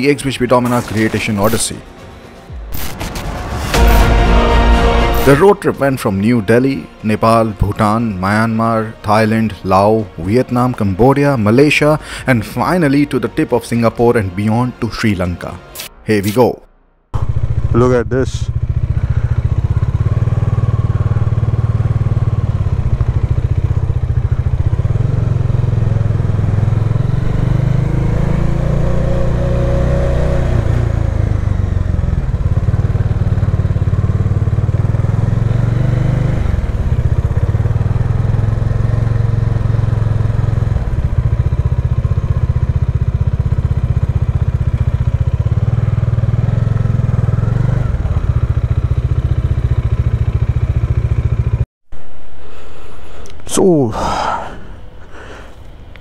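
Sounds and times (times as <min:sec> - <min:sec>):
motorcycle engine running: 0:17.2 - 0:52.3.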